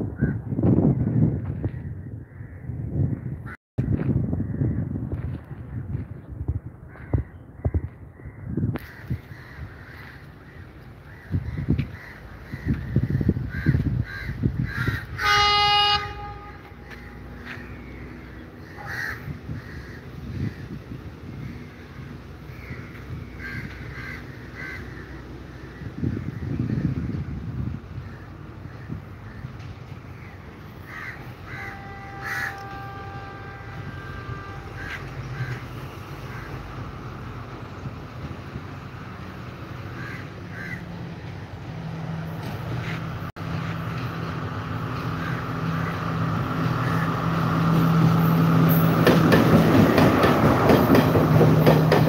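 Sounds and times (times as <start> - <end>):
distant diesel train rumble: 0.0 - 52.0
crows cawing: 6.9 - 15.3, 16.8 - 20.8, 22.5 - 25.9, 30.2 - 32.9, 34.7 - 36.6, 40.0 - 40.9
train horn: 15.1 - 17.3, 31.3 - 35.6.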